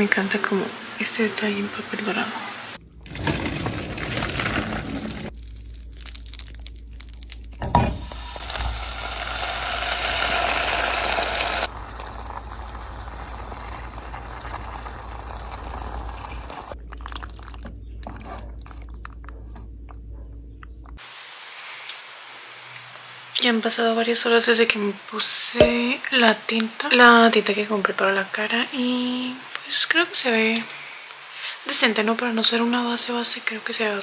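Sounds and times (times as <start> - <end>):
hot food hissing in pan: 7.9 - 16.8, 21.0 - 23.3.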